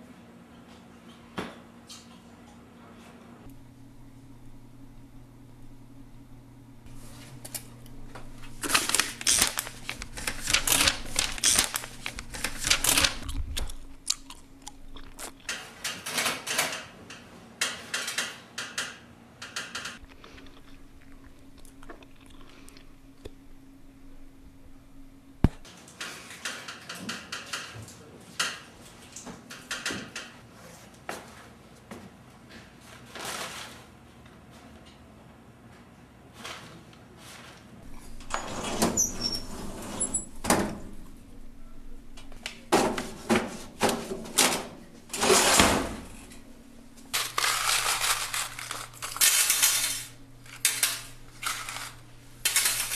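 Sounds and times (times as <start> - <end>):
low steady hum: 3.4 - 15.5, 20.0 - 25.7, 37.8 - 52.9
typewriter keys clattering: 8.5 - 13.8, 47.1 - 52.9.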